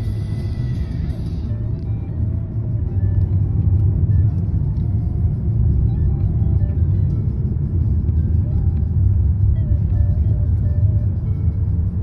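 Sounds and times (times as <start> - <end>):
car driving low rumble: 0.0 - 12.0
faint music: 0.0 - 12.0.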